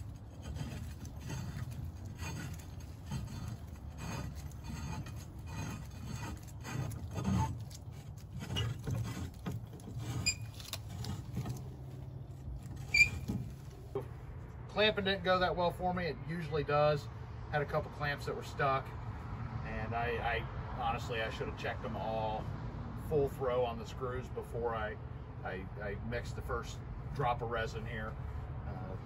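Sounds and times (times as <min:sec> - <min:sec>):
metal scraping and knocking: 0:00.0 - 0:14.2.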